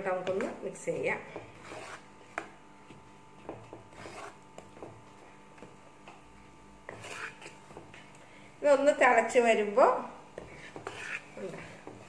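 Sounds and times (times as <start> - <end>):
wooden spatula scraping a wok: 1.4 - 2.4, 3.7 - 4.4, 6.9 - 7.9, 10.3 - 12.0.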